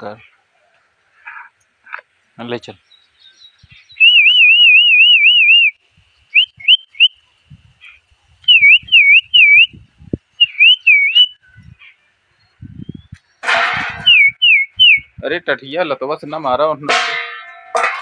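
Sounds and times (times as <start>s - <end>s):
person whistling calls: 4.0s - 7.1s, 8.5s - 9.8s, 10.4s - 11.4s, 14.0s - 15.1s.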